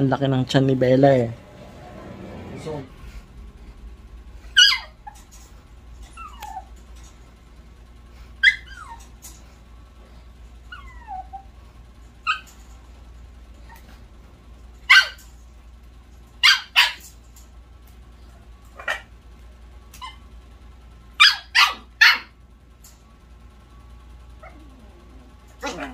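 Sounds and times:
puppy yipping and whining: 4.4 - 5.4, 6.0 - 6.8, 8.4 - 9.3, 10.6 - 11.6, 12.2 - 12.6, 14.9 - 15.3, 16.4 - 17.1, 19.9 - 20.3, 21.2 - 22.4, 24.4 - 25.9.

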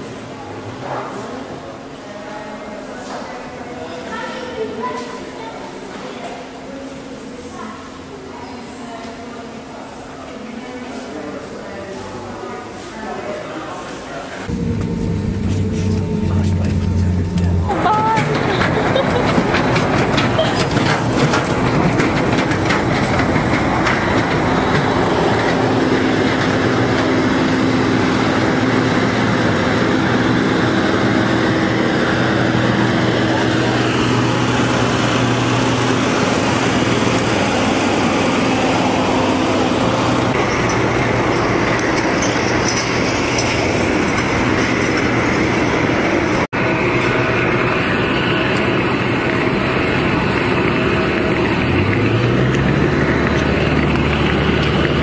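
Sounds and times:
ground vehicles running: 14.4 - 55.0
jet airliners roaring: 14.4 - 55.0.

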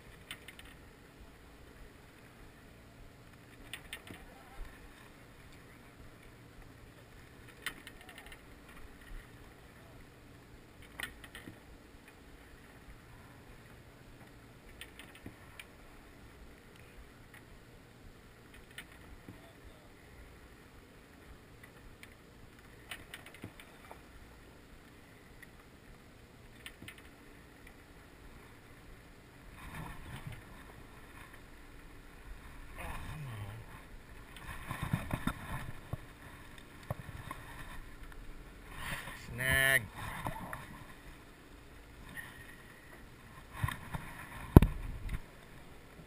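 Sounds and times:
handling noise on fishing rod: 0.0 - 0.8, 7.4 - 9.4, 21.6 - 24.0, 34.1 - 39.2
waves slapping against boat hull: 32.4 - 39.2.

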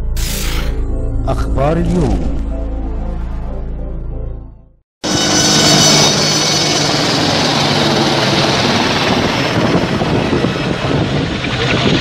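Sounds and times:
helicopter engine and rotor noise: 5.0 - 12.0.

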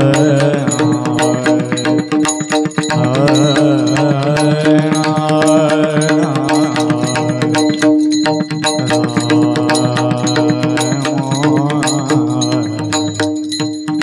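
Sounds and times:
hand drum drumming: 0.0 - 14.0
person singing devotional melody: 0.0 - 14.0
steady drone: 2.9 - 7.8, 8.7 - 13.4.

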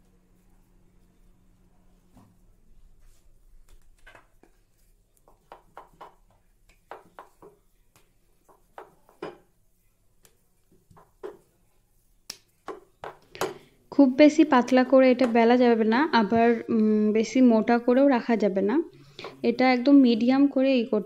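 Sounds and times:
dough rustling: 0.0 - 13.2.

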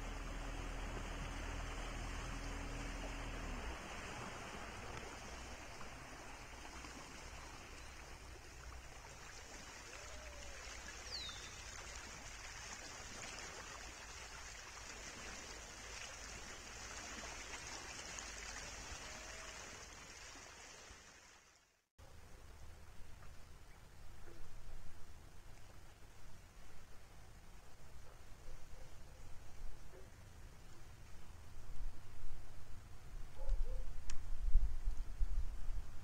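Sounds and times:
rippling lake water: 0.0 - 32.6
faint bird chirps: 11.1 - 11.6.

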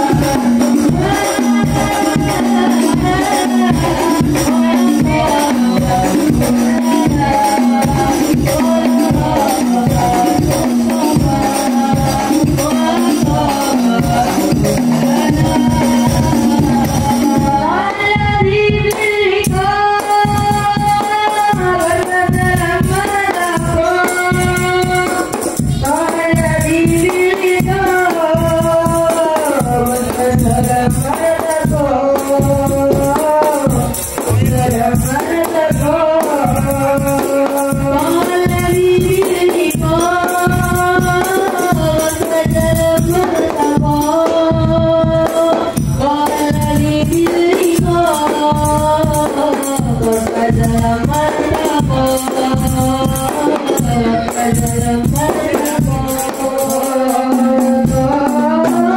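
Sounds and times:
frame drums: 0.0 - 58.9
male voice singing through microphone: 0.0 - 58.9
bass drum: 29.6 - 39.2.

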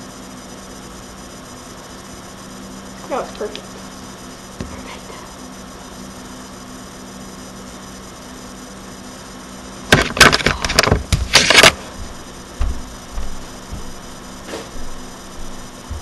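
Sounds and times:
low electrical hum: 0.0 - 16.0.

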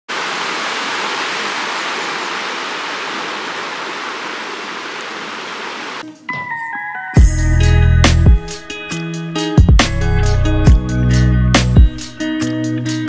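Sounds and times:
stream rushing over rocks: 0.1 - 6.0
intro tune: 6.7 - 9.0.

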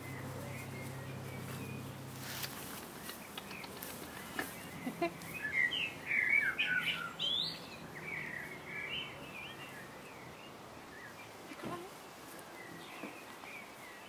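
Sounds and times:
songbird chirping: 0.0 - 14.0.

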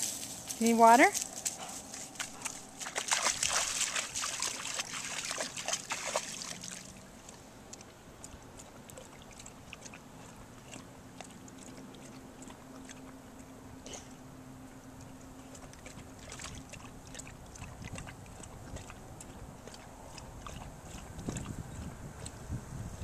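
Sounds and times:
dog lapping water: 1.5 - 22.4
dog splashing in water: 1.9 - 13.3, 15.4 - 22.3.

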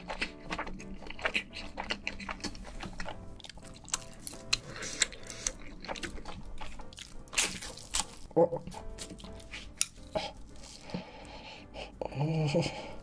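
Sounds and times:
chewing with wet mouth clicks: 0.0 - 10.2
quiet background music: 0.0 - 13.0.

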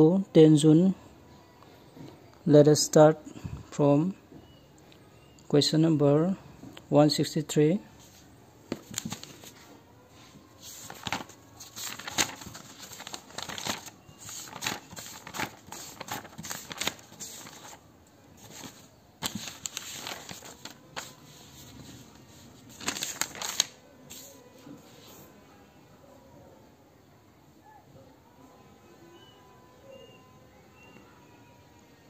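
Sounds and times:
paper pages rustling: 8.0 - 17.8, 18.4 - 25.2.

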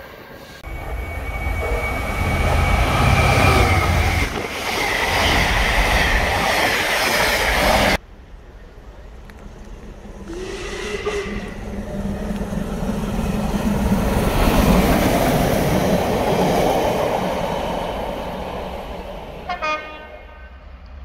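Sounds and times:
steam train passing: 0.0 - 21.0
train whistle: 0.6 - 4.3, 10.3 - 11.7, 19.5 - 20.8.

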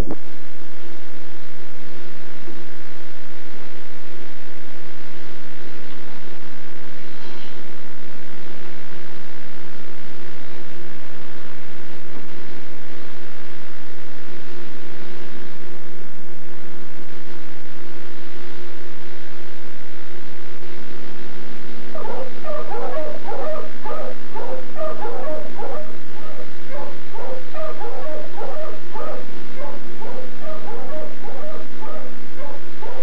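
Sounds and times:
steady low hum: 0.0 - 33.0
dog yapping and whimpering: 22.0 - 33.0.

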